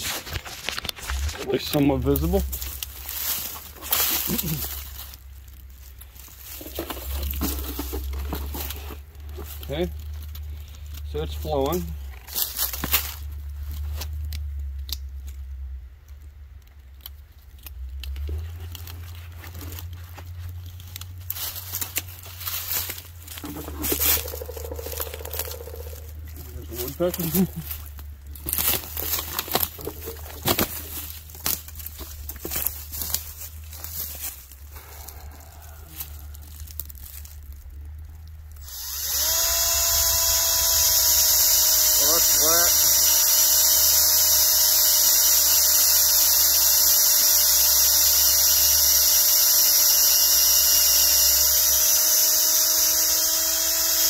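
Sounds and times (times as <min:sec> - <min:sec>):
clothing and twigs rustling: 0:00.0 - 0:14.5, 0:17.7 - 0:38.6
steady low rumble: 0:00.0 - 0:39.0
electric drill whining: 0:23.4 - 0:27.4, 0:38.6 - 0:54.0.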